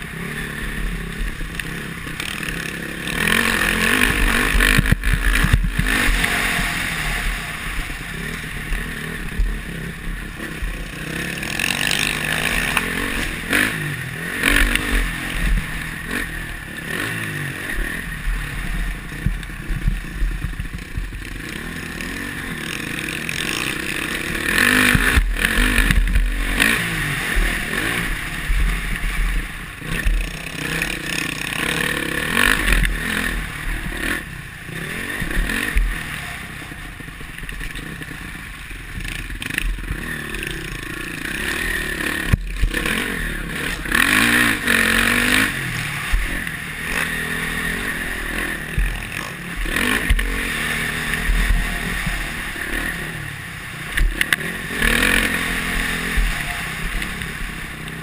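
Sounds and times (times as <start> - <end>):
clatter over bumps: 0.0 - 36.2, 36.9 - 58.0
motocross engine revving: 0.0 - 58.0
wind rumbling on microphone: 4.1 - 11.0.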